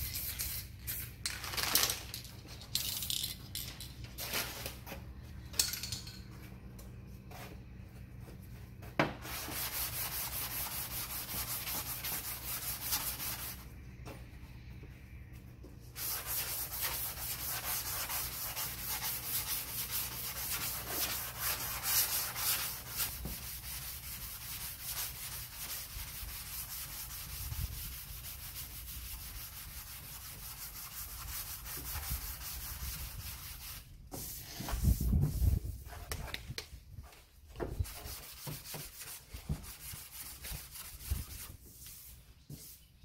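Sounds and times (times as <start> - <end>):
sandpaper scraping on metal panel: 9.2 - 13.6, 16.0 - 35.7.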